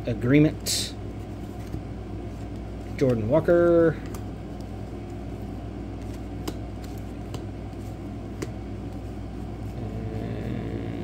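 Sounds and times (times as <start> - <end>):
low background hum: 0.0 - 11.0
cards clicking: 6.0 - 9.0.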